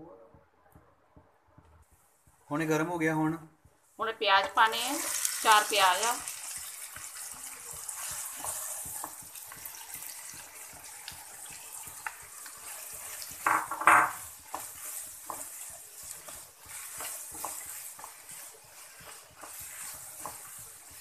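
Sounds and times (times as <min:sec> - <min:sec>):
onions sizzling in hot oil: 0:04.0 - 0:21.0
spatula scraping a pan: 0:04.7 - 0:21.0.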